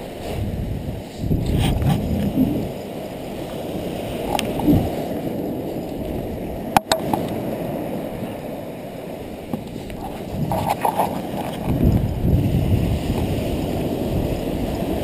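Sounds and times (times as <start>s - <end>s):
surf rushing on beach: 0.0s - 15.0s
wind buffeting microphone: 0.0s - 15.0s
sharp click: 6.8s - 7.4s.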